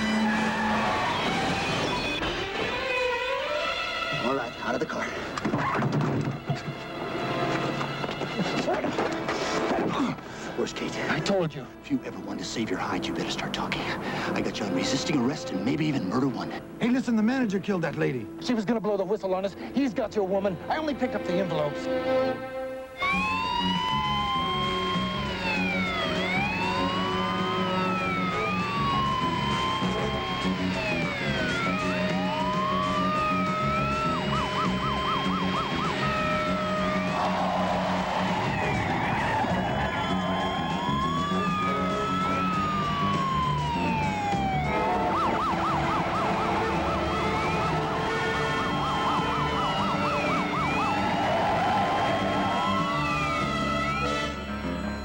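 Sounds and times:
police sirens wailing: 0.0s - 5.8s, 21.9s - 55.0s.

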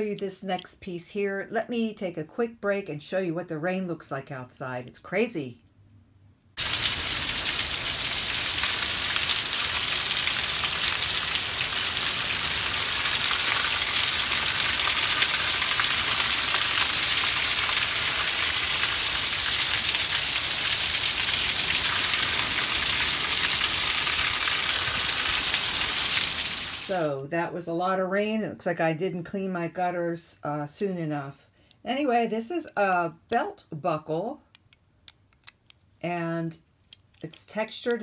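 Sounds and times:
heavy rain pouring: 6.6s - 27.0s
water overflowing a gutter: 6.6s - 27.0s.

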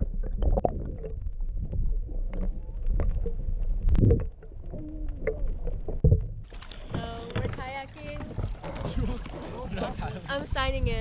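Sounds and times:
muffled underwater water sloshing: 0.0s - 11.0s.

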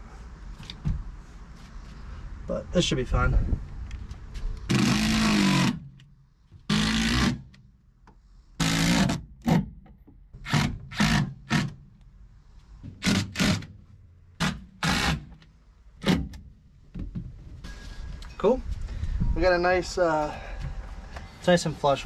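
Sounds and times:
power drill driving screws: 4.7s - 5.8s, 6.7s - 7.4s, 8.6s - 9.2s, 10.4s - 11.7s, 14.4s - 15.3s.

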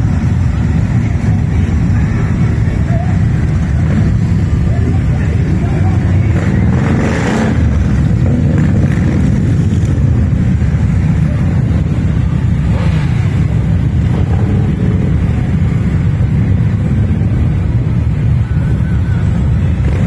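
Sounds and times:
motorcycles riding past: 0.0s - 16.1s.

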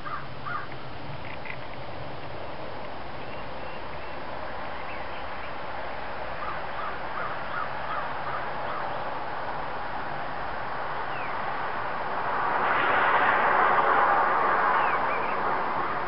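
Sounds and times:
faint bird calls: 0.0s - 1.7s, 6.3s - 9.0s
steady rushing noise: 0.0s - 16.0s.

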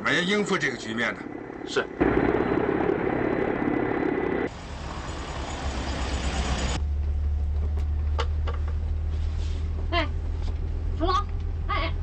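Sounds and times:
helicopter rotor noise: 0.0s - 6.8s
vehicle engine hum: 0.0s - 12.0s.

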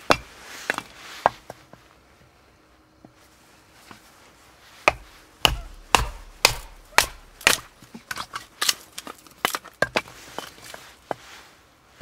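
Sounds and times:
firewood splitting strikes: 0.0s - 1.4s, 4.8s - 10.8s.

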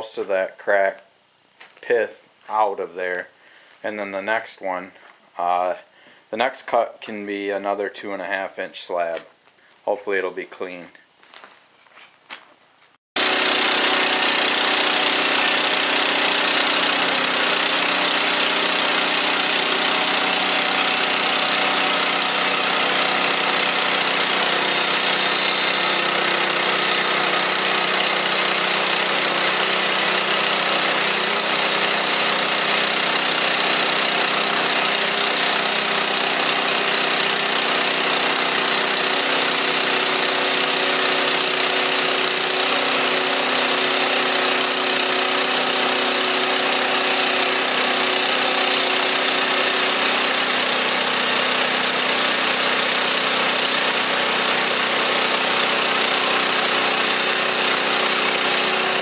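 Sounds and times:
bandsaw mill engine running: 13.2s - 59.0s.

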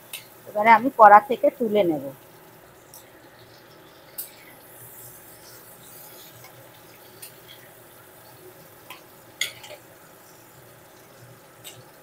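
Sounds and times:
metal spatula scraping in pan: 4.1s - 7.8s, 8.8s - 9.8s.

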